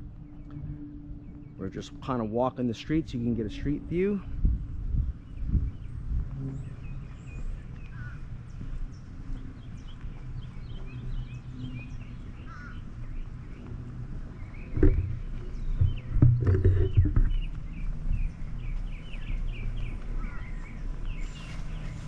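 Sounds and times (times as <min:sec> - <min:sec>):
small birds chirping: 0:00.1 - 0:22.0
knocks: 0:15.8 - 0:17.3.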